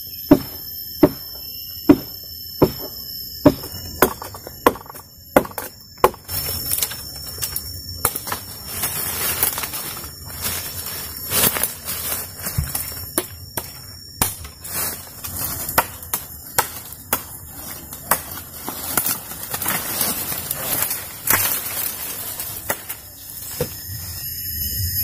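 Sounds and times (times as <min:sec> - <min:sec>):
high insect drone: 0:00.0 - 0:25.0
blade chopping wood: 0:00.3 - 0:06.4.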